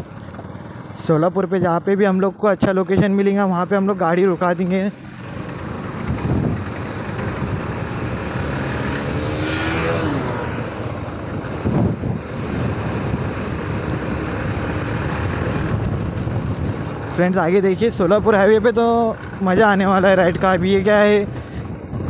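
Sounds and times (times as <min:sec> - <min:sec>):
motorcycle engine running: 0:00.0 - 0:22.0
motorcycle accelerating past: 0:05.1 - 0:16.2
wind rush on microphone: 0:05.1 - 0:22.0.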